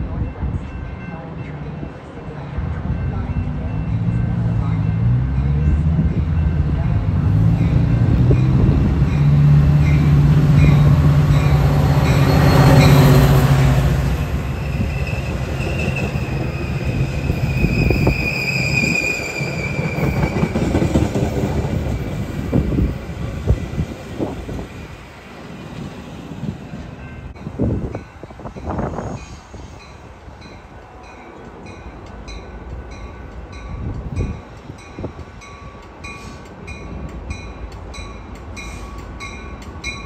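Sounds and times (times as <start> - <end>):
crossing bell ringing: 0.0 - 20.1, 27.0 - 40.0
diesel locomotive engine hum: 0.0 - 40.0
train wheels squealing: 11.3 - 13.3, 14.5 - 20.9, 28.6 - 30.0.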